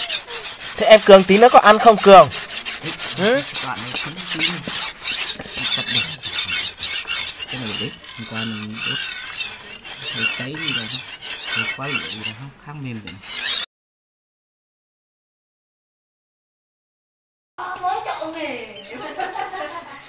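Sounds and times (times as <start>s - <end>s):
knife scraping on whetstone: 0.0s - 13.7s.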